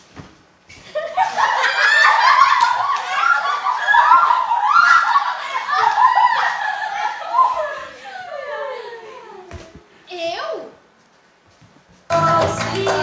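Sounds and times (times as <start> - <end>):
girls laughing loudly: 0.8 - 9.5.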